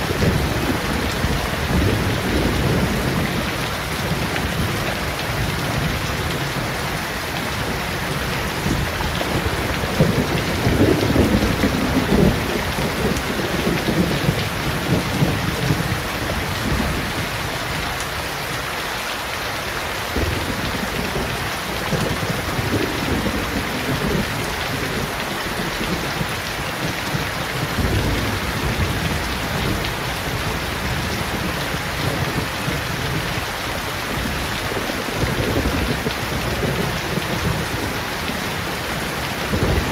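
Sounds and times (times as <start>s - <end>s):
rain falling on leaves and pavement: 0.0s - 39.9s.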